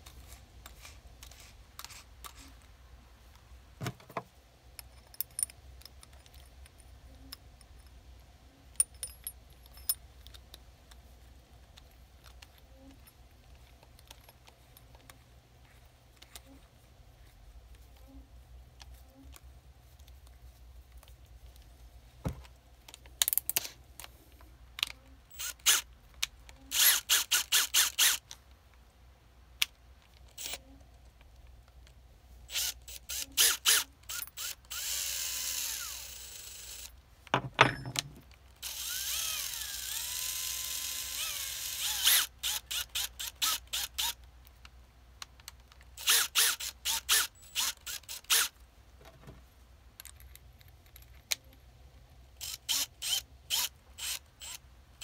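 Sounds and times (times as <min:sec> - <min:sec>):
drill chuck ratcheting clicks: 0:32.5 - 0:36.9, 0:38.6 - 0:44.2, 0:46.0 - 0:48.5, 0:52.4 - 0:54.6
drill motor whine: 0:38.7 - 0:42.2.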